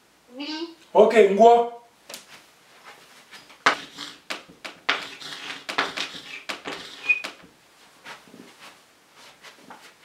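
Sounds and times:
chalk squeak: 3.7s - 4.3s, 4.9s - 7.4s
chalk scratching on blackboard: 3.7s - 8.2s.

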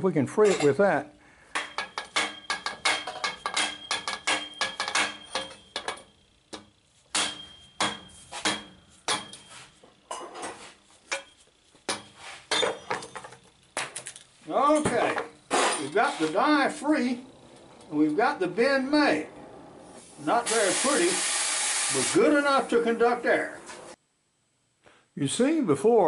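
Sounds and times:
hammer clanking on steel pipe: 1.5s - 9.6s.

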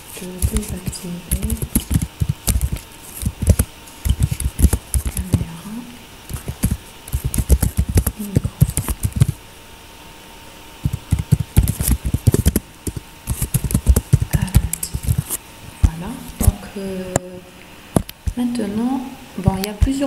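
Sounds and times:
computer keyboard typing: 0.1s - 5.6s, 6.3s - 9.4s, 10.8s - 15.4s.

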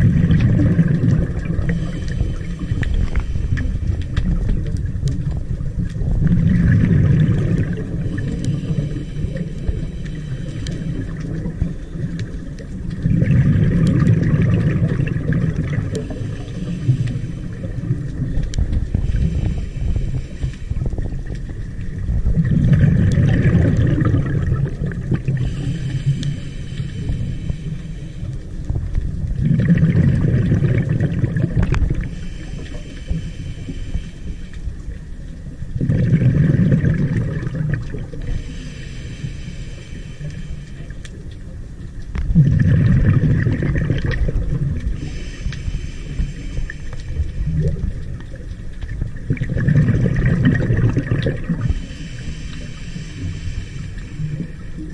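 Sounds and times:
gurgling exhaled bubbles: 0.0s - 54.9s
regulator inhalation hiss: 16.0s - 18.0s, 18.9s - 21.8s, 25.3s - 28.6s, 31.9s - 35.2s, 38.3s - 41.3s, 44.9s - 47.9s, 51.6s - 54.9s.

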